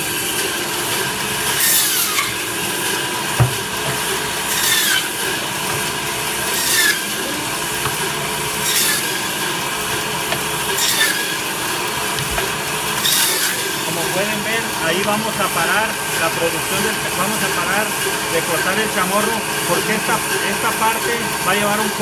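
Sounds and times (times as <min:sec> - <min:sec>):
electric band saw running: 0:00.0 - 0:22.0
saw rasping through meat and bone: 0:01.4 - 0:21.1
dull thump: 0:03.4 - 0:03.6.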